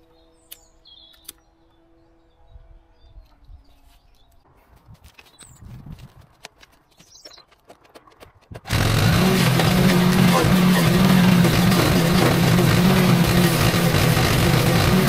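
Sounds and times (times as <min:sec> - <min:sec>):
bird chirps: 0:00.0 - 0:04.4, 0:06.9 - 0:07.6
low rumbling: 0:08.7 - 0:15.0.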